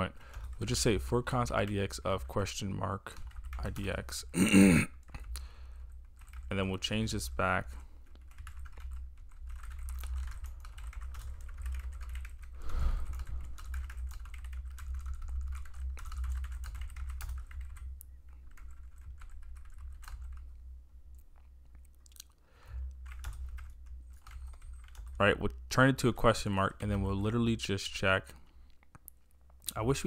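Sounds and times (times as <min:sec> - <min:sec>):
steady low hum: 0:00.0 - 0:21.8.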